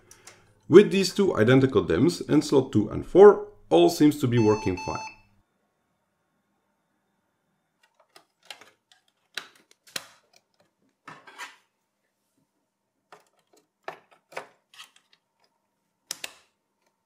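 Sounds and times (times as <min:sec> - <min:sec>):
clicks of plastic and metal parts: 0:07.8 - 0:10.8.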